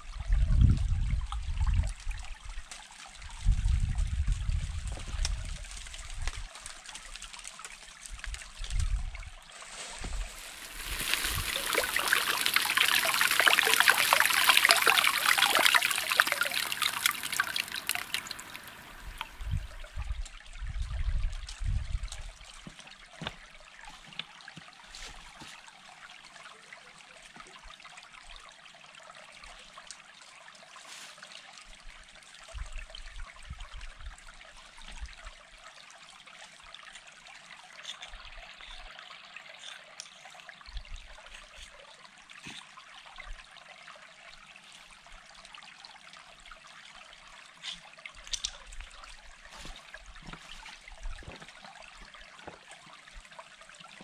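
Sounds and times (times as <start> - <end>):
trickle of running water: 0.0 - 54.0
stones knocking: 9.9 - 17.4.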